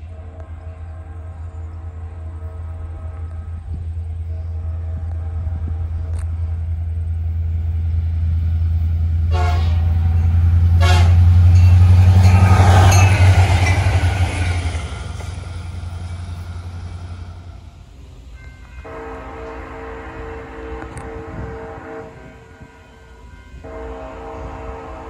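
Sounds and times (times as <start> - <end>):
locomotive horn blasts: 0.0 - 6.8, 9.2 - 15.4, 18.8 - 25.0
train rushing past: 0.0 - 25.0.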